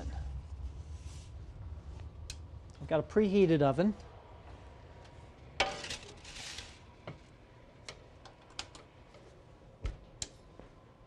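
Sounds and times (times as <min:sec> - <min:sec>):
pan scraping: 0:05.6 - 0:06.8.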